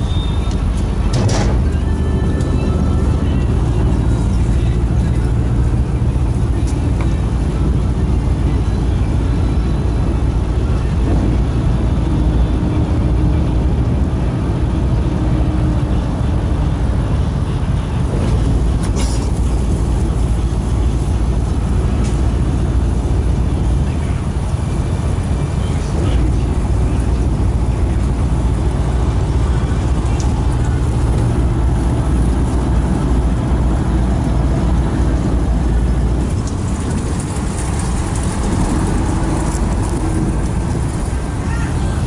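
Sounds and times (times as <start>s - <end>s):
boat engine drone: 0.0s - 42.0s
water wash: 0.0s - 42.0s.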